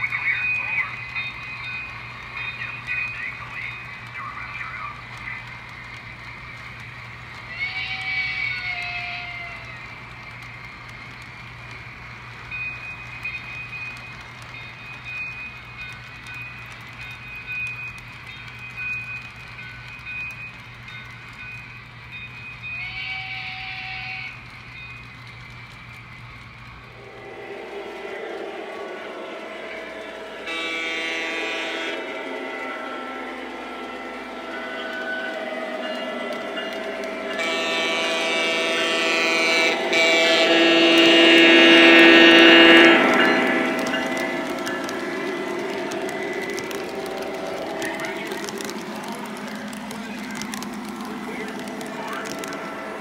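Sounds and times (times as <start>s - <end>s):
model train rolling rumble: 0.0s - 53.0s
high whine: 26.9s - 53.0s
train horn signal blast: 30.4s - 35.5s, 37.3s - 45.8s.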